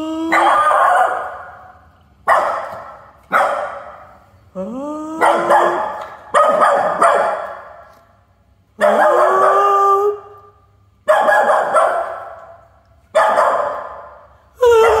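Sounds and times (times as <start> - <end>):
small dog howling barks: 0.3 - 1.5, 5.2 - 7.4, 8.8 - 10.2.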